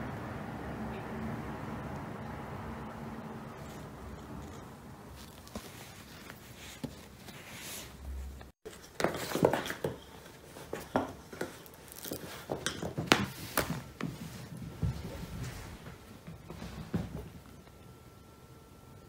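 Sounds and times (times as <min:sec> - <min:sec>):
cats scuffling on wooden floor: 0:03.6 - 0:17.8.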